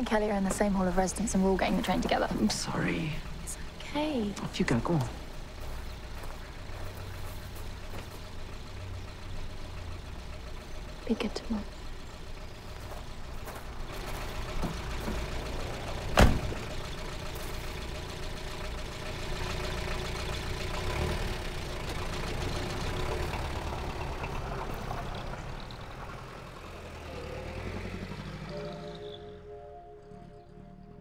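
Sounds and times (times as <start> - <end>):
diesel engine idling: 0.0 - 31.0
car door slamming: 16.1 - 16.6.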